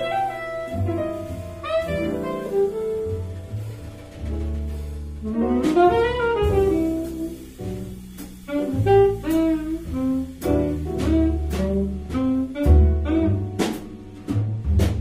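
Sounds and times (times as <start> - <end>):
saxophone melody: 0.0 - 3.8, 5.2 - 7.8, 8.4 - 13.9
drum kit with cymbal strokes: 0.0 - 15.0
piano: 0.0 - 15.0
upright bass: 0.0 - 15.0.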